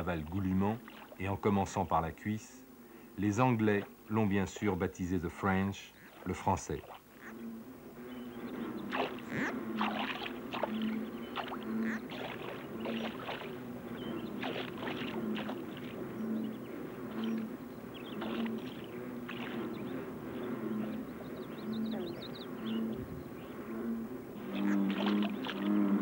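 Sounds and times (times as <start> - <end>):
wet rustles and splashes: 0.0 - 1.5, 3.6 - 7.3, 8.8 - 20.5, 24.4 - 26.0
low pulsing hum: 0.0 - 26.0.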